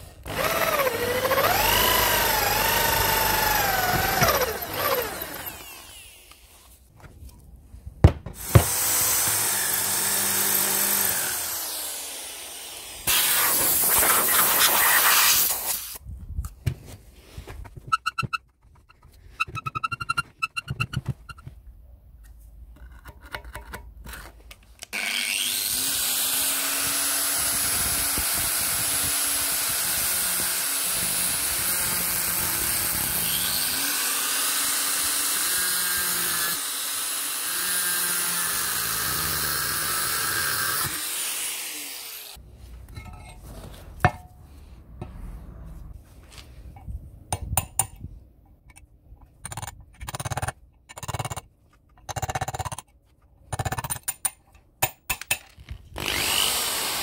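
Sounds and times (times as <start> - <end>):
angle grinder on iron: 0.3 - 6.5, 8.4 - 15.7, 24.9 - 42.4, 56.0 - 57.0.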